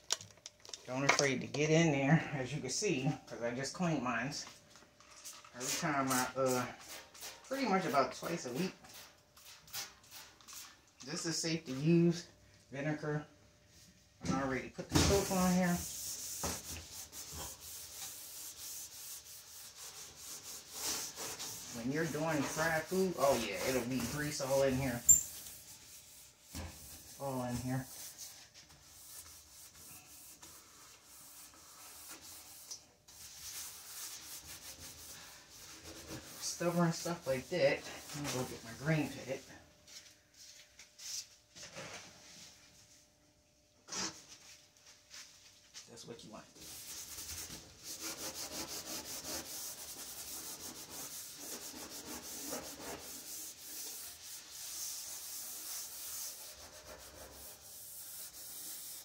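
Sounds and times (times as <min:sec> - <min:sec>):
scouring pad scrubbing metal pan: 0:21.7 - 0:24.8
gloved hand scrubbing metal: 0:47.5 - 0:59.0.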